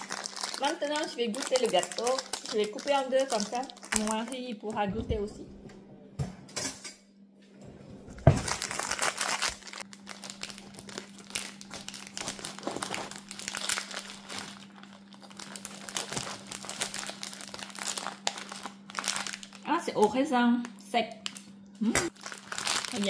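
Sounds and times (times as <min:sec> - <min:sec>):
food packaging crinkling: 0:00.0 - 0:04.7, 0:08.2 - 0:19.7, 0:22.1 - 0:23.0
faint steady hum: 0:00.0 - 0:23.0.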